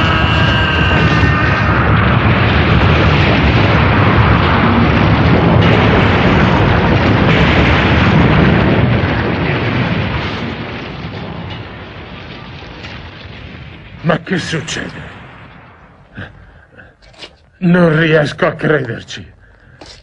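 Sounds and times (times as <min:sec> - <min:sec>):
huge rumbling explosion: 0:00.0 - 0:19.8.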